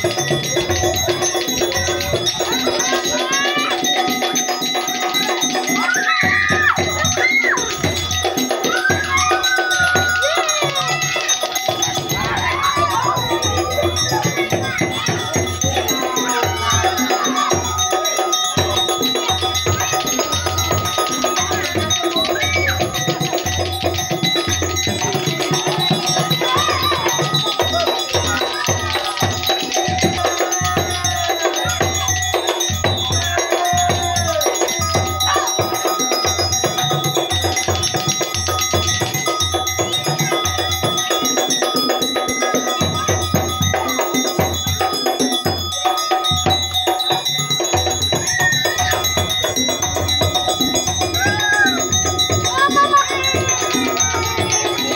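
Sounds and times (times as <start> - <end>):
drum beats: 0.0 - 54.9.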